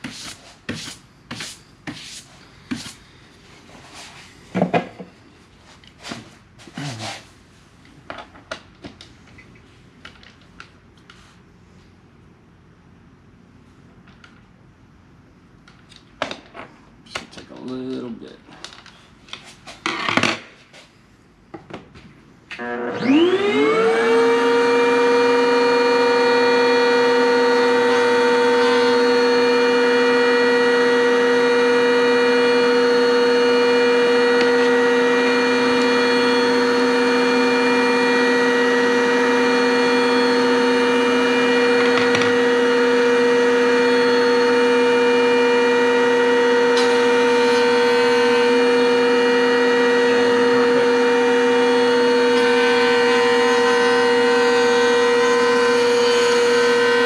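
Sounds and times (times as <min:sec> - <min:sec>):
router whining: 0:22.5 - 0:57.0.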